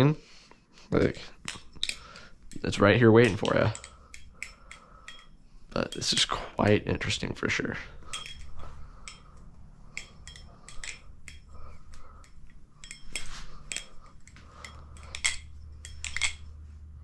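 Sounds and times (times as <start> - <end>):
metallic knife handle clicks: 1.5 - 2.6, 8.1 - 9.3, 9.9 - 11.5, 12.2 - 16.5.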